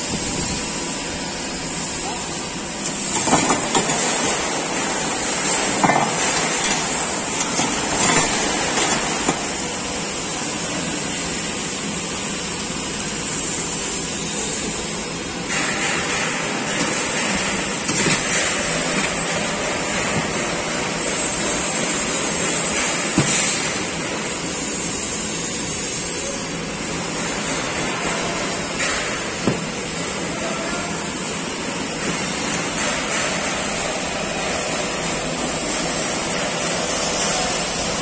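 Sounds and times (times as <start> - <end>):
machinery and ventilation hiss: 0.0 - 38.0.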